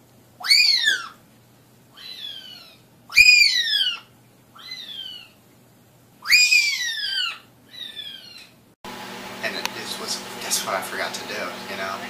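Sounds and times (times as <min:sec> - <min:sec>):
parrot whistling: 0:02.0 - 0:05.3, 0:06.2 - 0:08.4.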